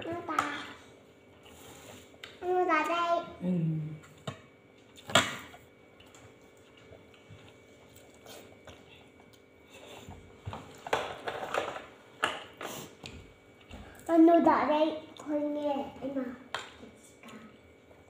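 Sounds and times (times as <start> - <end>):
chewing: 4.8 - 10.0.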